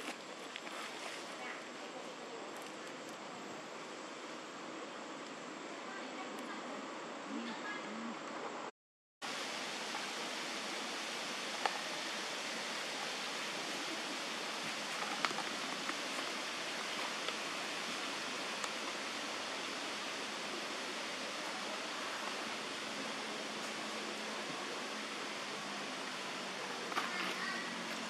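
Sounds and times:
steady hiss: 0.0s - 28.0s.

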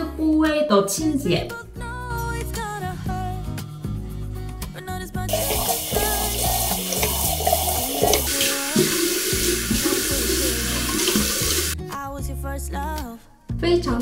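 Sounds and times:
hands splashing face: 5.3s - 11.8s
tap water running into sink: 5.3s - 11.8s.

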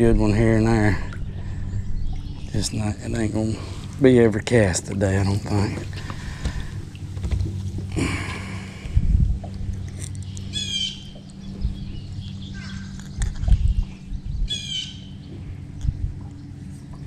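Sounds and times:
low thumps: 0.0s - 9.8s
steady low hum: 0.0s - 17.0s
bird calling: 9.8s - 17.0s.

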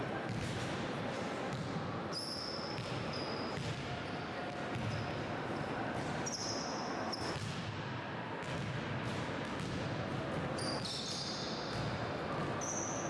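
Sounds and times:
basketballs bouncing on gym floor: 0.3s - 0.7s, 1.5s - 1.8s, 2.8s - 5.1s, 6.0s - 6.3s, 7.1s - 7.8s, 8.4s - 13.0s.

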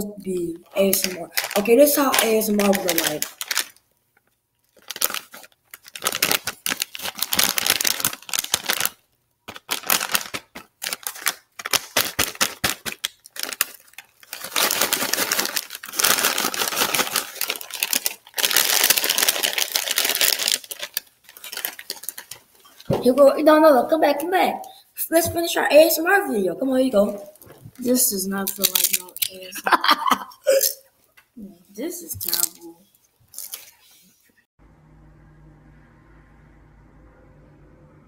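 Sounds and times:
chip bag crinkling: 0.3s - 22.9s, 27.3s - 29.7s, 32.1s - 32.7s, 33.3s - 33.8s.

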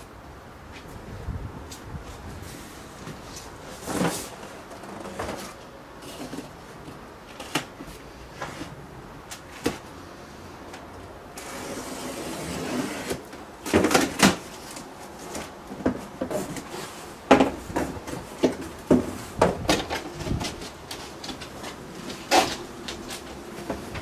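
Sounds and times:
cardboard flaps knocking and rustling: 13.6s - 24.0s.

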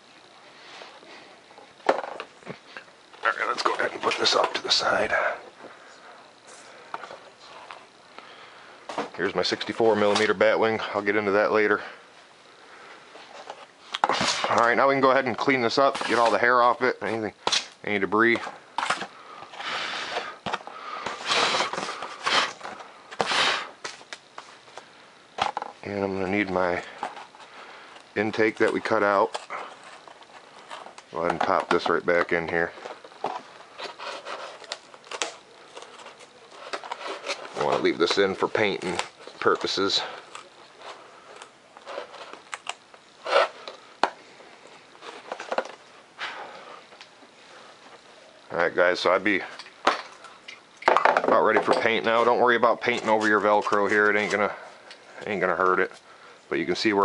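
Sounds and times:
foam pieces scraping: 14.0s - 16.8s, 17.4s - 24.0s.

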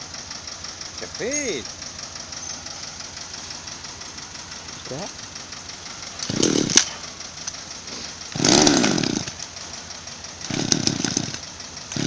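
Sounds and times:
chainsaw engine bursts: 6.0s - 9.8s, 10.4s - 12.0s
chainsaw starter cord pulls: 6.2s - 7.0s, 7.9s - 9.5s, 10.4s - 12.0s.

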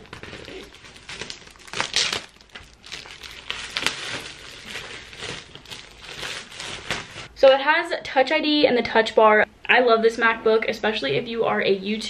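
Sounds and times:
plastic wrap crinkling: 0.0s - 7.3s.

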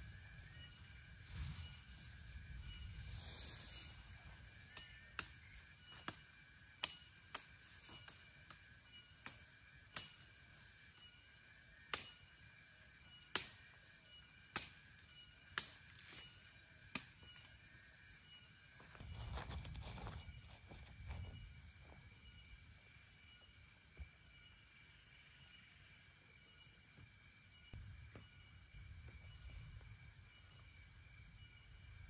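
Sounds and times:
high insect drone: 0.0s - 32.0s.

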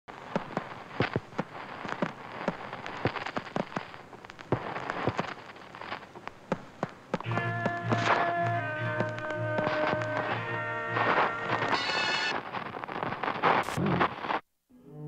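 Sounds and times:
film crackle pops and clicks: 0.1s - 14.4s
steady hiss: 0.1s - 14.4s.

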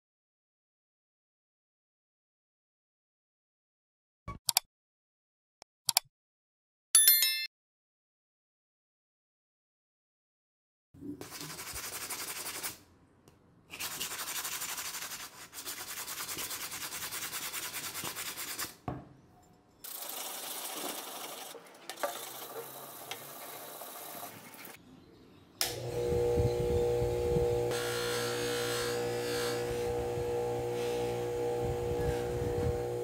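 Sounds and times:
wrench rubbed on sandpaper: 11.2s - 12.8s, 13.7s - 18.8s
bench buffer motor hum: 25.6s - 33.0s.

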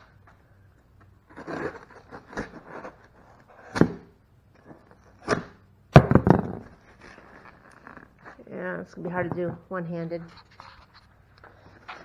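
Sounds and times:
cardboard box ripping: 1.3s - 4.0s.

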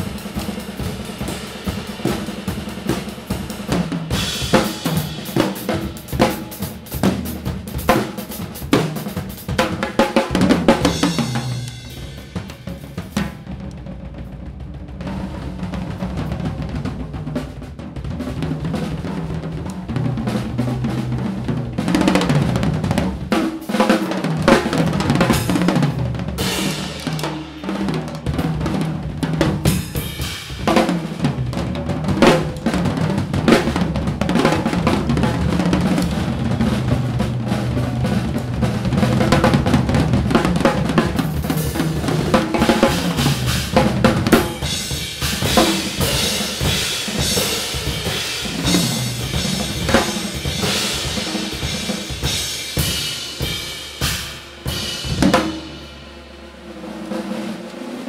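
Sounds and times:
drum kits playing: 0.0s - 58.0s
cymbals crashing: 10.6s - 13.4s, 24.0s - 28.1s, 40.3s - 58.0s.

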